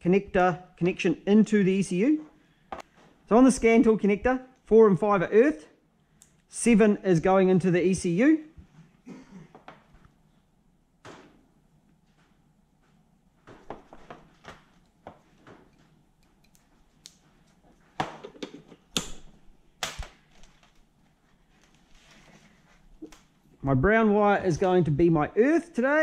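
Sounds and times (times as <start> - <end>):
handling plastic connector and wires: 19.8 - 23.3.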